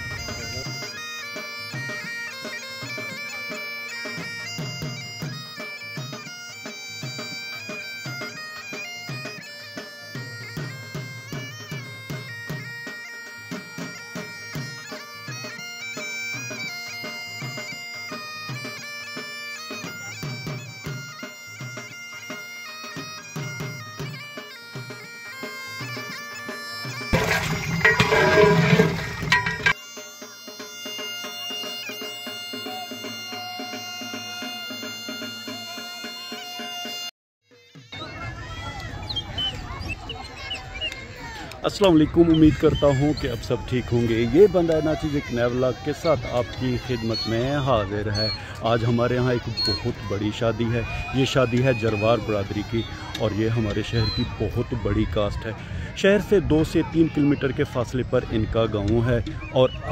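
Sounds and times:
bagpipe tune with drone: 0.0s - 38.6s, 41.3s - 55.9s
drum beating: 27.1s - 29.8s.

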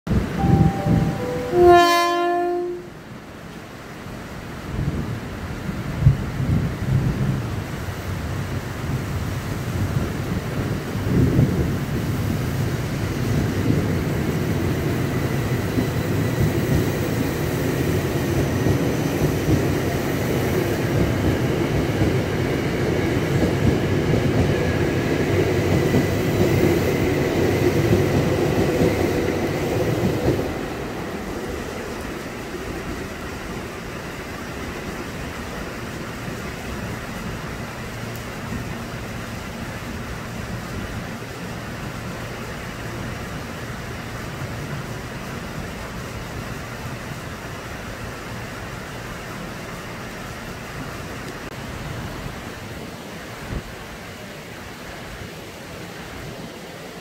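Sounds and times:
train wheels rumbling on rail: 0.1s - 57.0s
thin high whine: 0.2s - 3.0s
train clatter: 5.9s - 43.1s.

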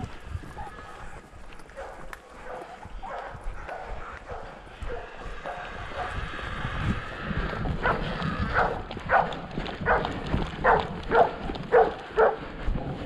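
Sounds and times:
footsteps running on forest floor: 0.0s - 13.0s
dog barking: 1.8s - 6.2s, 7.8s - 12.4s.

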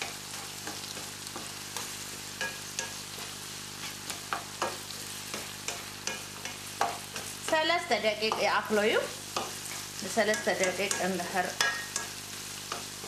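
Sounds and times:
spatula scraping pan: 0.0s - 13.0s
vegetables sizzling in oil: 0.0s - 13.0s.

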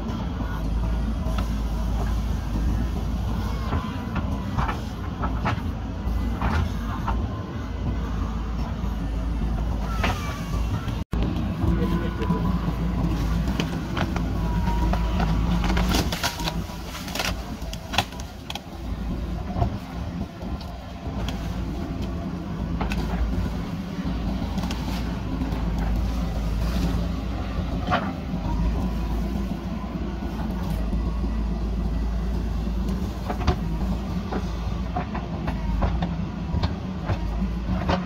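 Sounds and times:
diesel engine under load: 0.0s - 38.0s.

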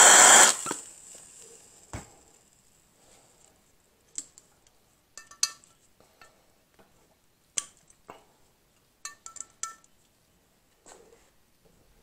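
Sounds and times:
metal tool clinking on metal: 5.2s - 6.4s, 9.0s - 9.9s.

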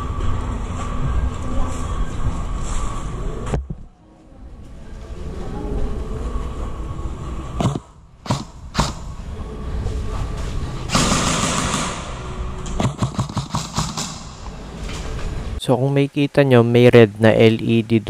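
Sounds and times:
low rumble: 0.0s - 15.6s
loud rushing noise: 5.0s - 15.6s
airsoft guns firing: 7.6s - 9.1s, 10.9s - 14.4s.

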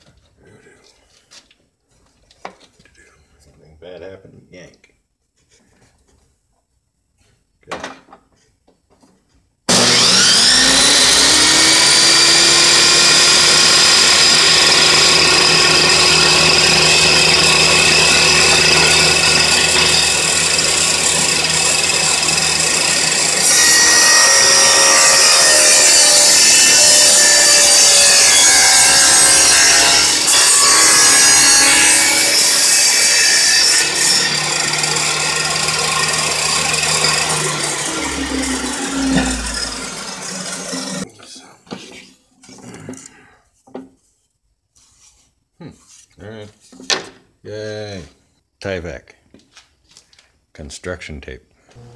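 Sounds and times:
saw blade cutting board: 9.7s - 41.0s
table saw motor whining: 9.7s - 41.0s.

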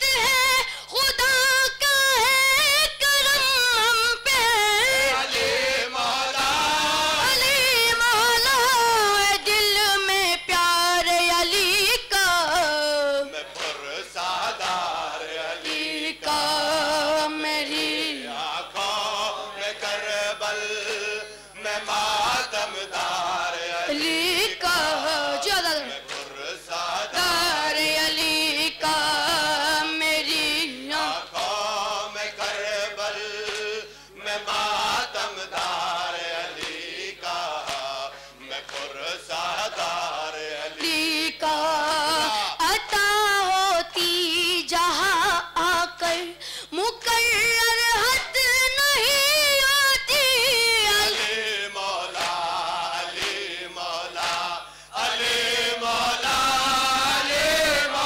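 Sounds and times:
boy chanting a lament into microphone: 0.0s - 13.4s, 23.8s - 26.0s, 27.2s - 31.3s, 40.7s - 51.2s
hands slapping chests: 13.5s - 14.0s, 26.0s - 26.4s, 33.4s - 33.8s, 36.6s - 36.9s, 37.6s - 37.9s, 38.6s - 39.0s, 52.2s - 52.6s, 53.2s - 53.5s, 54.2s - 54.6s.

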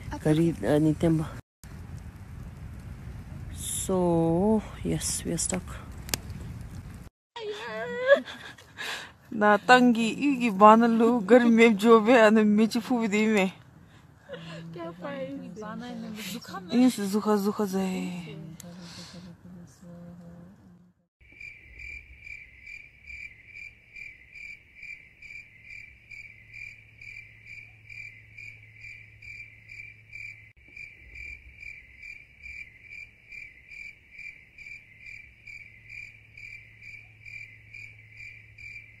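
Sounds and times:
cricket chirping: 21.2s - 39.0s.

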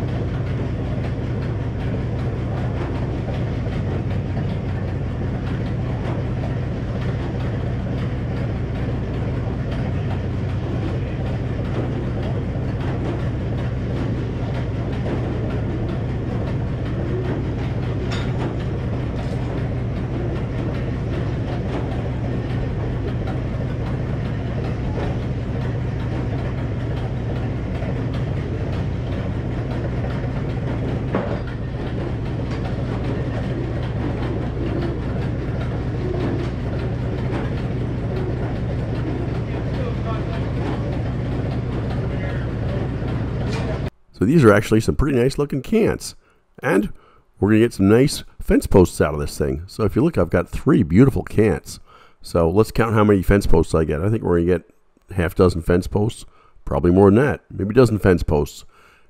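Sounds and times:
sawmill blade droning: 0.0s - 46.0s.

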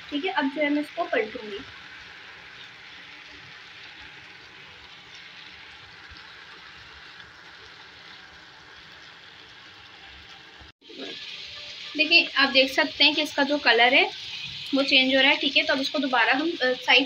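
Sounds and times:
chicken sizzling in a pan: 0.0s - 17.0s.

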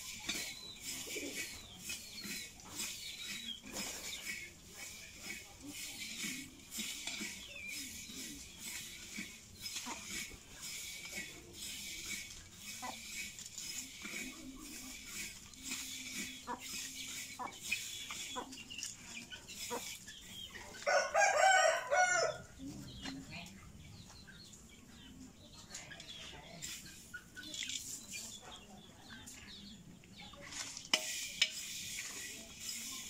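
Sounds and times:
metal spatula scraping in a wok: 0.0s - 20.8s, 30.4s - 33.0s
rooster crowing: 20.8s - 22.4s.

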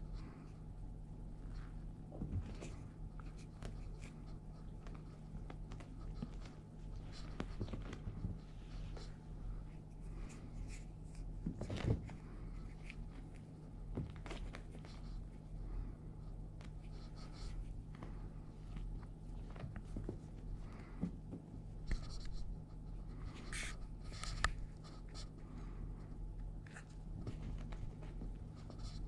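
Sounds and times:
steady low hum: 0.0s - 29.0s
kitten scampering on carpet: 1.4s - 15.5s, 16.4s - 29.0s.

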